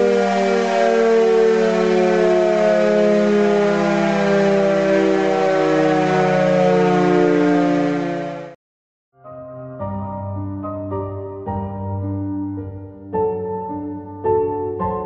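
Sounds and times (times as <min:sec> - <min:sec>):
electric motor siren two-note chord: 0:00.0 - 0:08.6.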